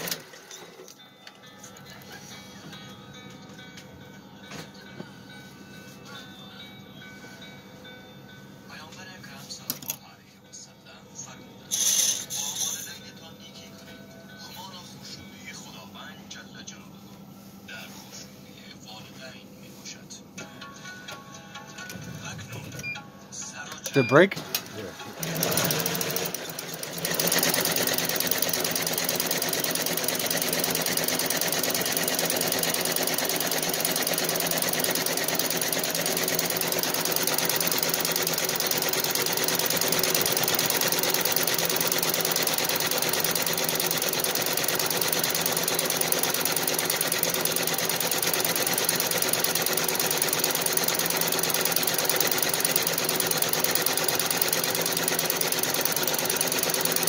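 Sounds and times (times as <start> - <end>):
embroidery machine needle clatter: 24.5 - 57.0.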